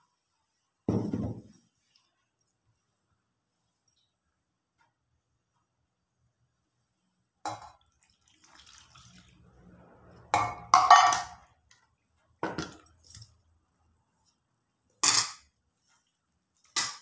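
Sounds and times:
liquid pouring into steel bowl: 7.7s - 9.6s.

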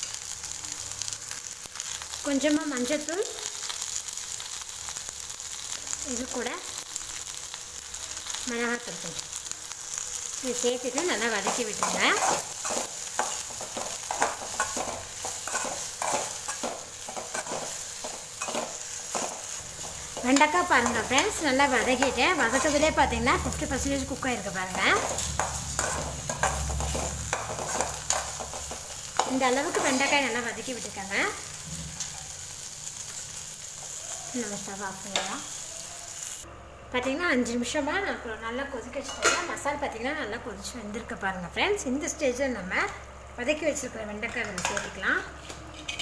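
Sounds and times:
okra sizzling in oil: 0.0s - 36.5s
steel spoon stirring in pan: 9.9s - 30.8s.

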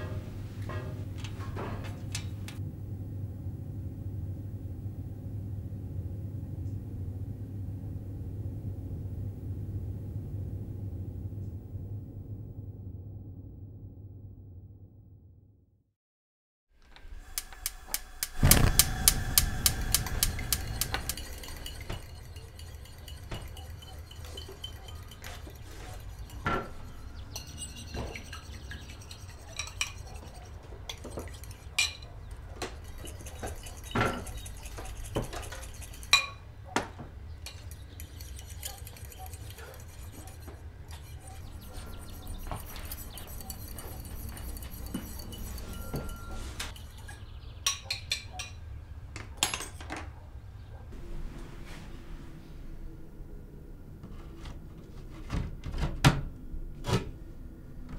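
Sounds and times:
rattling burst of clicks: 17.3s - 21.3s
dishes and utensils clinking: 19.7s - 36.4s, 37.4s - 48.6s, 49.4s - 50.1s.

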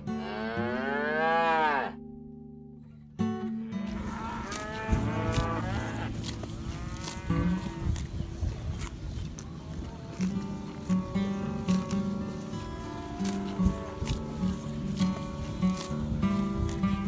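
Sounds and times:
outdoor rustle: 0.0s - 17.0s
cow mooing: 0.1s - 2.0s, 3.6s - 8.0s, 12.6s - 14.5s.

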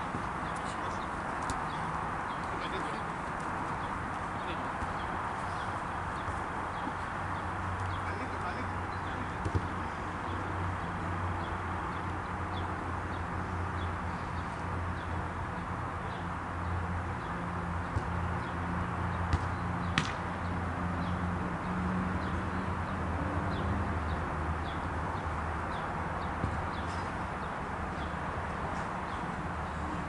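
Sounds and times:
ball being kicked: 9.4s - 9.8s.

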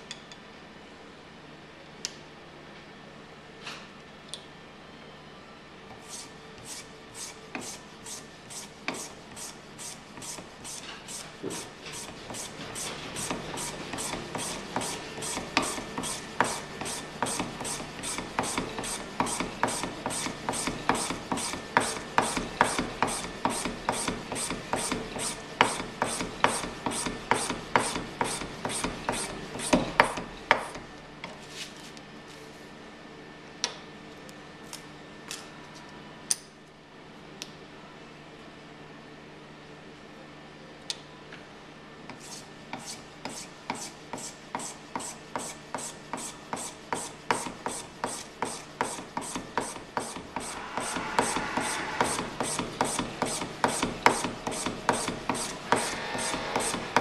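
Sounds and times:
blade scraping cane: 6.0s - 15.4s, 47.7s - 57.0s.

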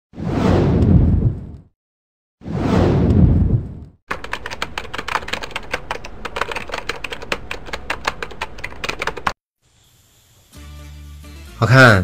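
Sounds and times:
whoosh: 2.4s - 3.9s
rapid typewriter key clicking: 4.1s - 9.4s.

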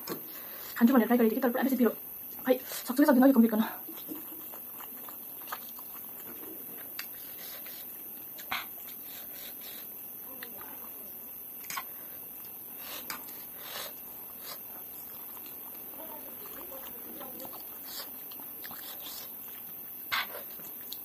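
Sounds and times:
faint steady hiss: 0.0s - 21.0s
chewing and slurping noodles: 3.8s - 9.9s, 11.6s - 21.0s.

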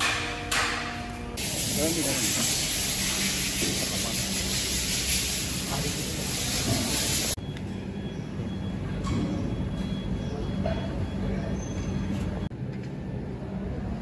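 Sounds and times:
loud steady hiss: 1.4s - 7.4s.

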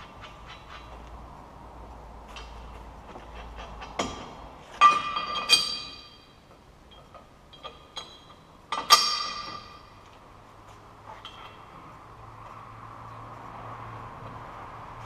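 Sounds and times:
steel parts clanking: 2.3s - 10.2s, 11.0s - 11.9s.

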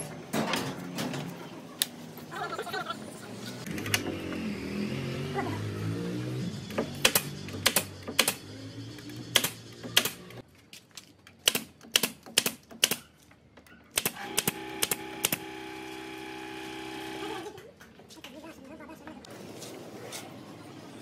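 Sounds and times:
nail gun firing nails into wood: 6.8s - 8.4s, 9.3s - 10.4s, 11.4s - 13.0s, 14.0s - 15.4s.

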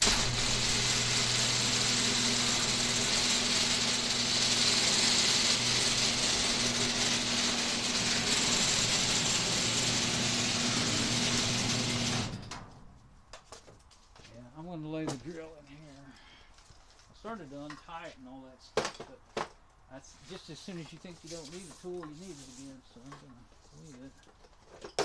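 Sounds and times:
garage door opener motor hum: 0.0s - 12.7s
garage door rattling on tracks: 0.0s - 12.8s.

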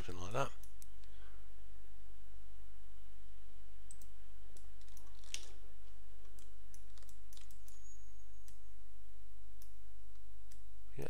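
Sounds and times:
steady low hum: 0.0s - 11.0s
mouse and keyboard clicks: 6.3s - 7.8s.

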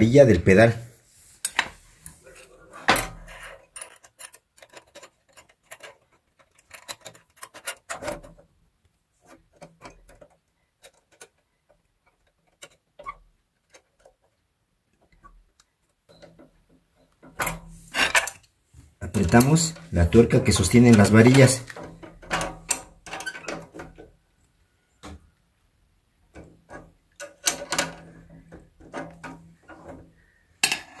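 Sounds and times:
metal rods clicking and tapping: 2.9s - 8.4s, 19.1s - 24.1s, 26.3s - 31.0s.

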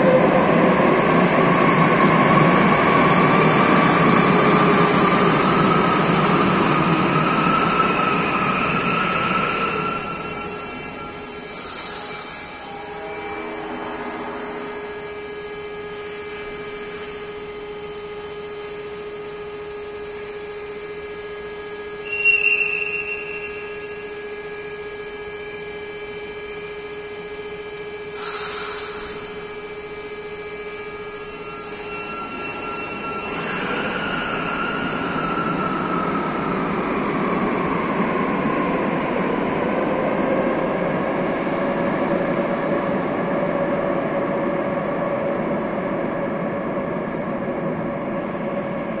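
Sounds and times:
train electrical hum: 0.0s - 49.0s
air hiss: 11.4s - 12.6s, 28.1s - 29.4s.

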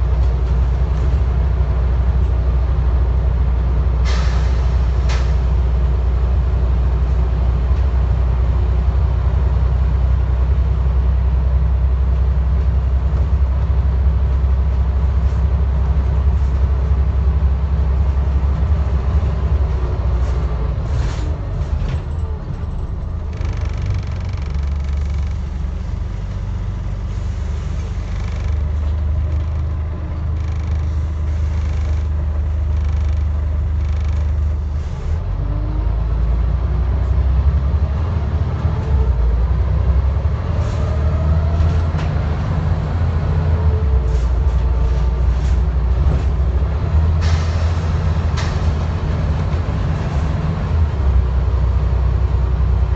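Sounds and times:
bus engine drone: 0.0s - 52.9s
sharp clicks: 23.3s - 25.7s.

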